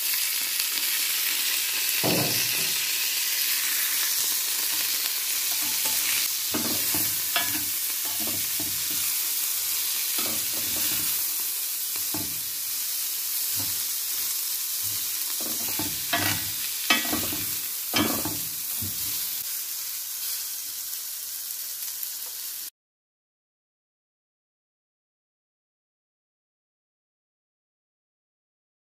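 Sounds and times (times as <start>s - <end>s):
vegetables sizzling in a grill pan: 0.0s - 22.7s
spatula scraping a pan: 5.4s - 19.4s.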